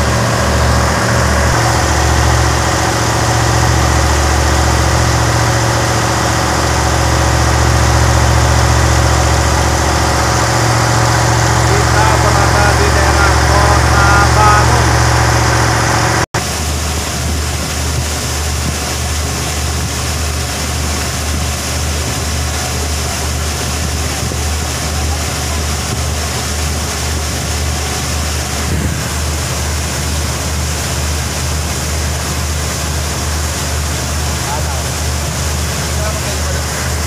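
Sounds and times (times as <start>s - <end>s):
boat engine drone: 0.0s - 37.0s
water rushing along hull: 0.0s - 37.0s
wind on microphone: 28.5s - 29.6s.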